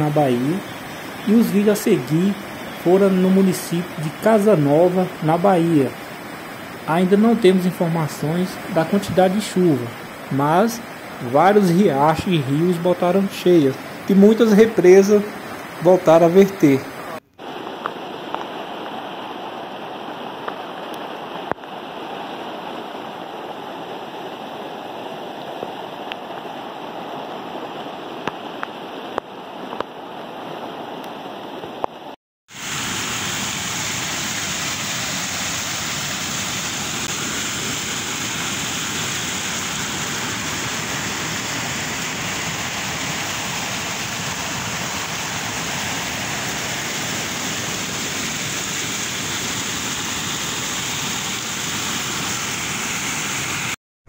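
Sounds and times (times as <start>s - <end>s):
floodwater rushing: 0.0s - 53.8s
water pouring over spillway: 32.5s - 53.8s.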